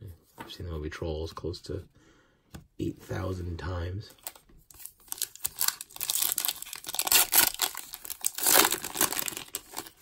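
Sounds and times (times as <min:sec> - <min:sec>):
foil wrapper crinkling and tearing: 0:04.2 - 0:10.0.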